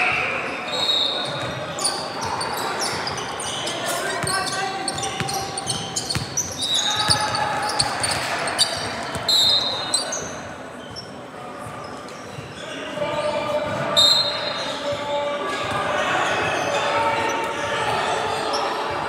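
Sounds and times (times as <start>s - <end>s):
players' voices: 0.0s - 19.0s
basketball bouncing on floor: 5.2s - 7.3s.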